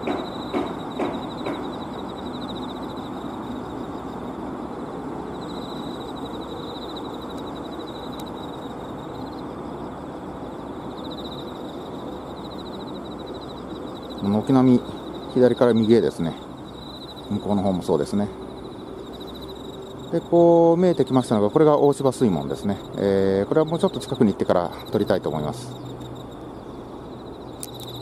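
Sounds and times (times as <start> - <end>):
insects trilling: 0.0 - 28.0
steady background rumble: 0.0 - 28.0.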